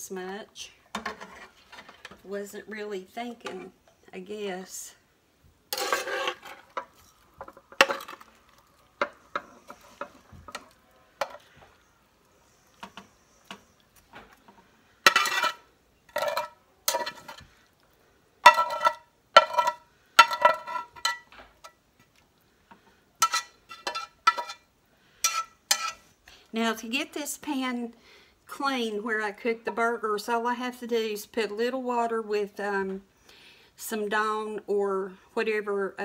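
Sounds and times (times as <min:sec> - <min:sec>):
metal spatula scraping a pan: 0:00.9 - 0:02.2, 0:05.7 - 0:08.4, 0:09.0 - 0:11.6, 0:15.0 - 0:17.6, 0:18.4 - 0:21.8, 0:23.2 - 0:26.2.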